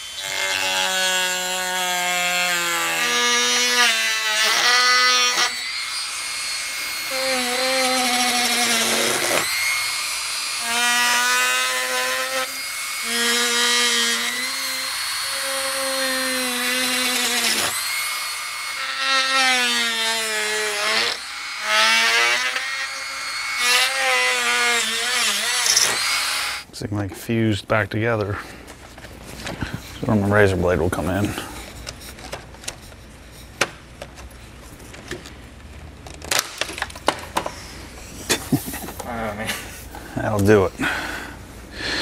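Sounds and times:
rotary tool whining: 0.0 - 26.7.

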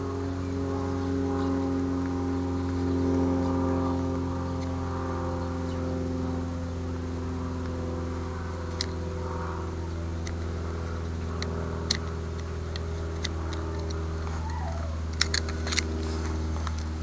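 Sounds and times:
steady mechanical hum: 0.0 - 17.0
blade slicing wood clicks: 11.2 - 17.0.

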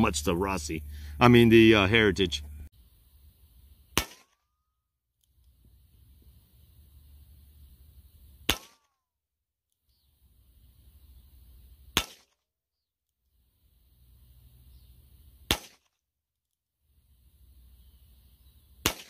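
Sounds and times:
revolver shots cracking: 4.0 - 4.4, 8.4 - 8.9, 11.9 - 12.3, 15.5 - 15.9.

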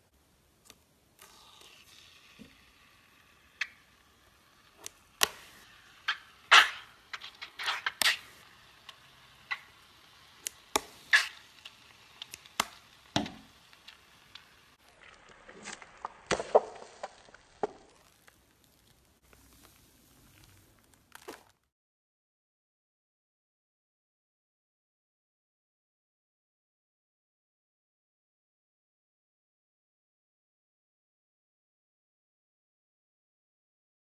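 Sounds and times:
slime clicking and popping: 4.8 - 8.2, 8.8 - 14.5.

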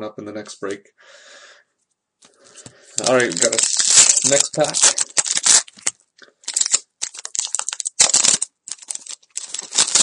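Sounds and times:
plastic wrapper crinkling and tearing: 2.9 - 10.0.

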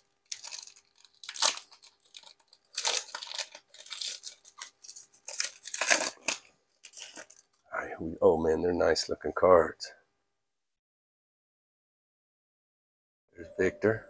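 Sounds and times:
wrapper tearing and crinkling: 0.0 - 7.5.

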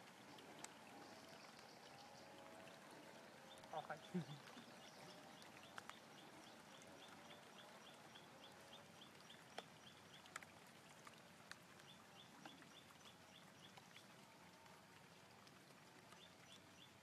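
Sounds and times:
faint sharp clicks: 0.2 - 2.7, 4.4 - 7.7, 9.0 - 16.9.

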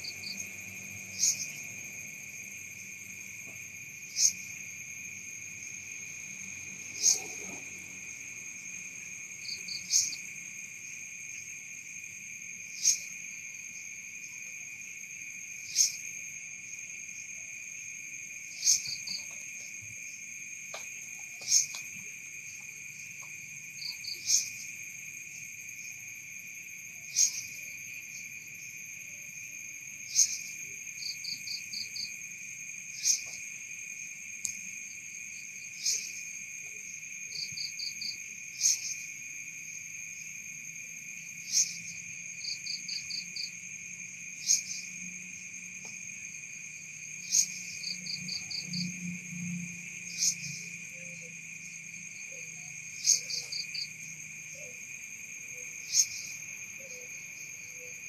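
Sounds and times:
insect high trill: 0.0 - 58.0
insect sharp chirp: 0.0 - 58.0
insect rattle of clicks: 20.7 - 23.4.

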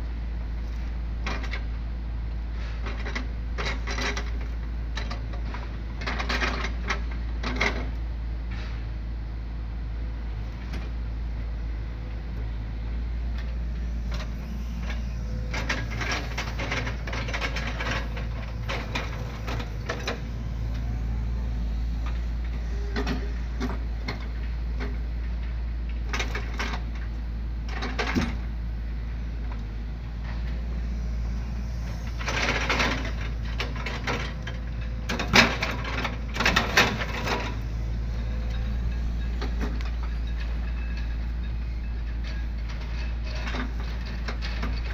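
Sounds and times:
diesel engine running: 0.0 - 44.9
grapple and logs creaking and knocking: 13.2 - 25.0.

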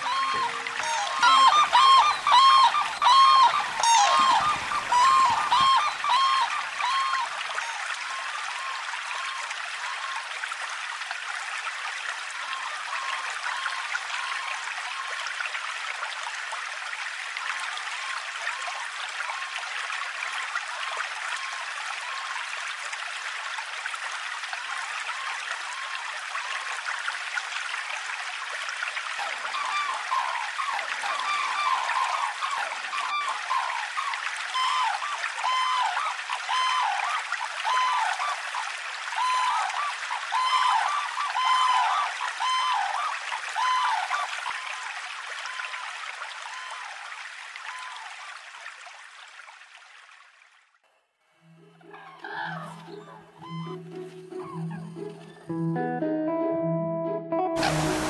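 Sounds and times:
cranes calling: 0.0 - 10.2, 29.1 - 45.9, 46.6 - 46.9, 51.8 - 55.5, 57.6 - 58.0
river water running over shallows: 0.0 - 50.7, 57.6 - 58.0.

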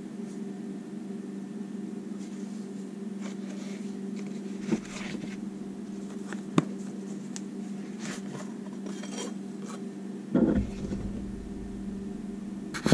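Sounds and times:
steady low hum: 0.0 - 12.9
knock: 10.4 - 11.4.

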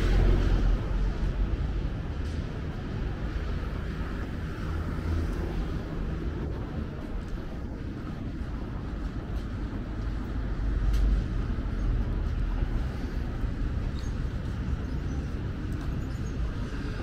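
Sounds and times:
low rumble of road traffic: 0.0 - 17.0.

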